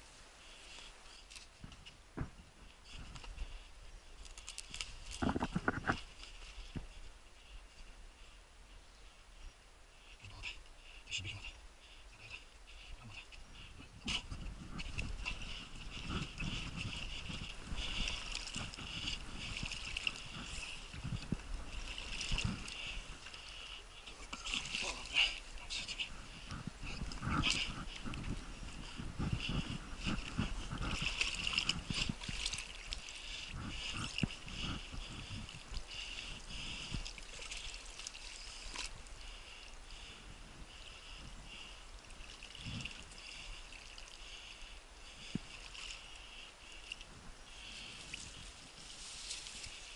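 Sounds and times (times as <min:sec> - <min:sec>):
rustling vegetation: 0:00.0 - 0:49.9
paddle sloshing and knocking water: 0:14.1 - 0:39.1.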